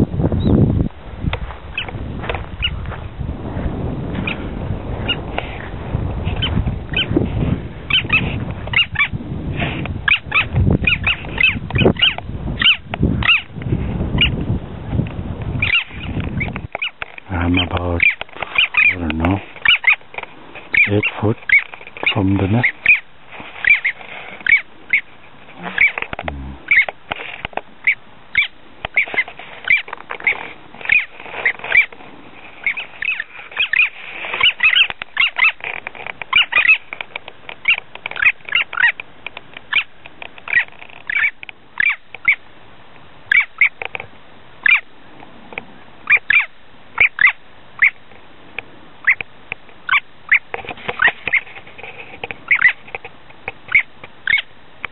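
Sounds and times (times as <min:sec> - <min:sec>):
seabird short high calls: 0:06.4 - 0:07.1, 0:07.9 - 0:09.1, 0:10.0 - 0:13.5, 0:15.6 - 0:20.0, 0:20.7 - 0:26.9, 0:27.8 - 0:31.9, 0:32.6 - 0:35.6, 0:40.5 - 0:42.4, 0:43.3 - 0:43.8, 0:44.6 - 0:44.9, 0:46.0 - 0:48.0, 0:52.5 - 0:52.9, 0:53.7 - 0:54.5.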